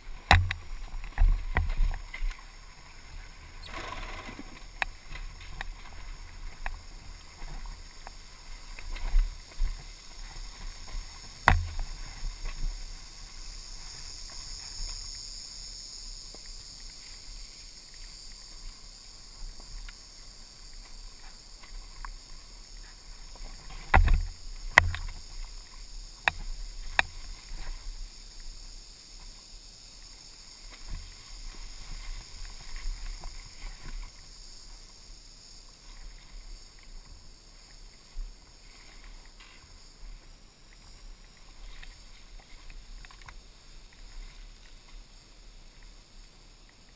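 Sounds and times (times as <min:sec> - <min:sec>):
dirt bike rolling rumble: 0:00.0 - 0:29.6
steady high hiss: 0:00.0 - 0:46.9.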